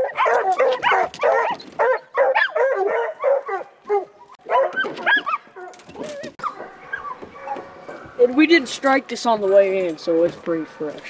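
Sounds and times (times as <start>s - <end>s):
hounds barking excitedly: 0.0s - 8.8s.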